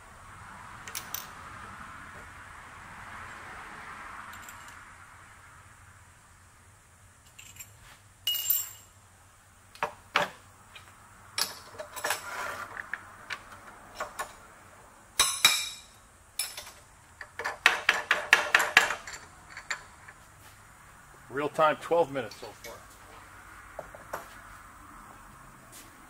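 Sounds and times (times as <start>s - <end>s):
metal tools clinking on vise: 7.3s - 8.9s, 15.2s - 20.2s, 22.2s - 22.9s.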